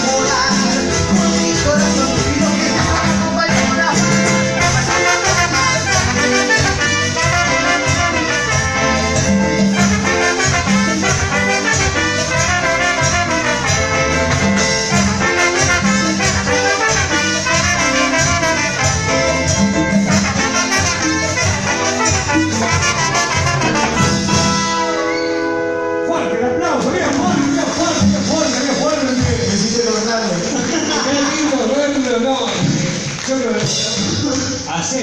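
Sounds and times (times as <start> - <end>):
drums: 0.0 - 25.2, 26.8 - 31.4
trombone and trumpets: 0.0 - 31.9.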